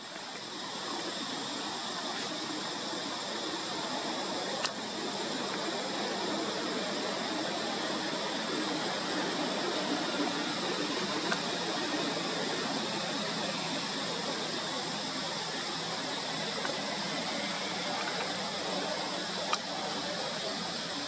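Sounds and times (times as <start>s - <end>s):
forest ambience hiss: 0.0s - 21.0s
small ticks: 4.6s - 4.8s.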